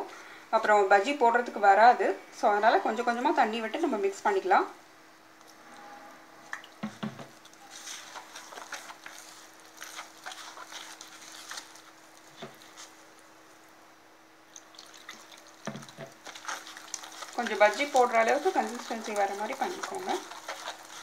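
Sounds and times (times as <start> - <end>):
faint steady hum: 0.0 - 21.0
hand kneading wet batter: 6.8 - 13.3, 14.5 - 21.0.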